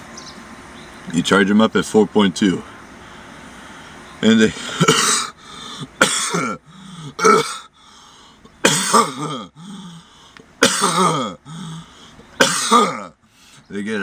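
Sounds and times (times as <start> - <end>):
man coughing hoarsely: 4.4 - 7.7, 8.6 - 10.0, 10.6 - 13.2.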